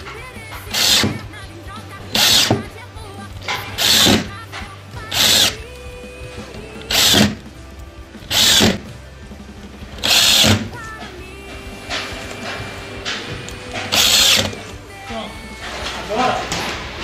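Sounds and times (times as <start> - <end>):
cordless drill driving screws: 0.7 - 1.2, 2.1 - 2.7, 3.5 - 4.4, 5.1 - 5.8, 6.5 - 7.4, 8.2 - 8.9, 10.0 - 10.7, 13.4 - 14.7.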